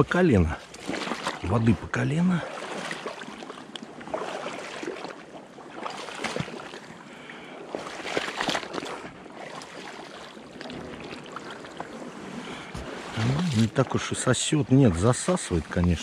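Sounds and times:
boots wading through water: 0.0s - 16.0s
squelching mud: 7.7s - 13.9s.

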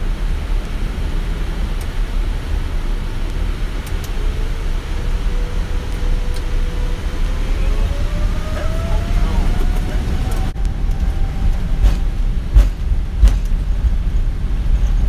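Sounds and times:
cockpit low rumble and hiss: 0.0s - 15.0s
faint rising tone: 4.2s - 12.6s.

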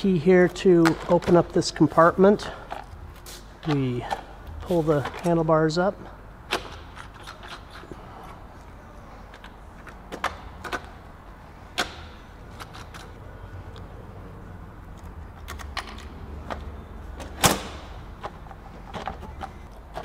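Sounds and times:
minibike parts clicking and clunking: 9.3s - 11.0s, 11.7s - 13.2s, 14.9s - 20.0s.

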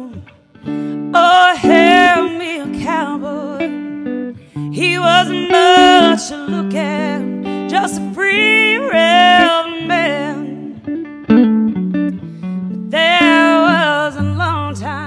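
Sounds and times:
folk blues song: 0.0s - 15.0s
guitar accompaniment: 0.0s - 15.0s.

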